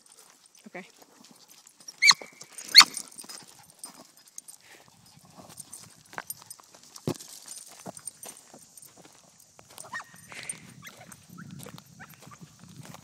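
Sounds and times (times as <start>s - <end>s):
small dog barking: 9.8s - 12.4s.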